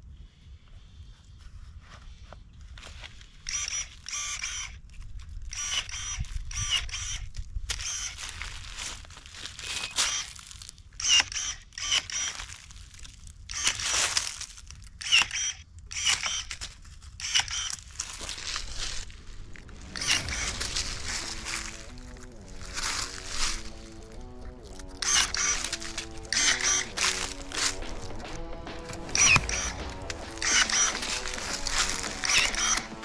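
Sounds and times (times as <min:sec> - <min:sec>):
pruning shears snipping: 0:15.0 - 0:33.0.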